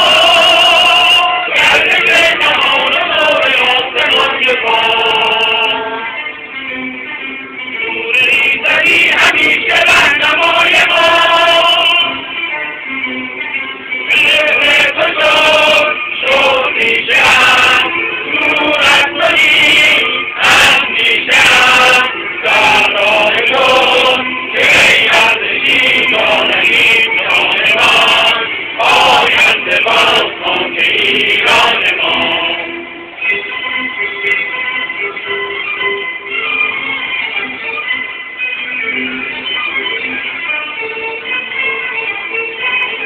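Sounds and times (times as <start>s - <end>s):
chorus singing: 0.0s - 6.4s, 7.8s - 12.8s, 14.0s - 33.4s.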